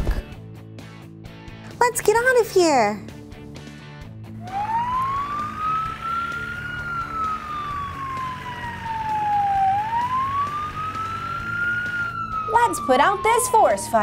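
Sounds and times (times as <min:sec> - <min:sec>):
fire truck siren wailing: 0:04.3 - 0:14.0.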